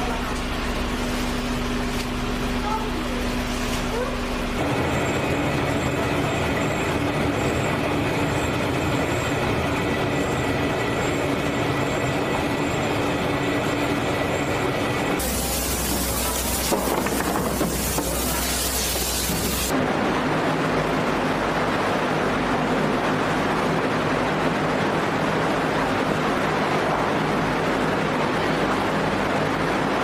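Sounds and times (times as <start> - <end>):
machinery hum: 0.0 - 30.0
water churning in a tank: 15.2 - 30.0.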